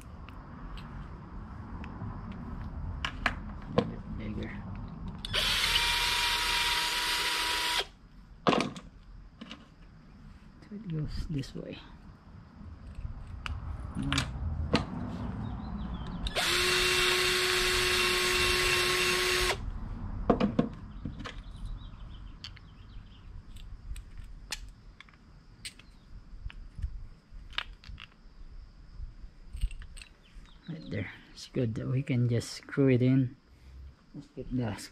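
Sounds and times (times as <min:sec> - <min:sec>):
cordless drill motor whine: 0:05.2 - 0:07.9, 0:16.3 - 0:19.6
handling clicks and knocks: 0:27.5 - 0:28.2.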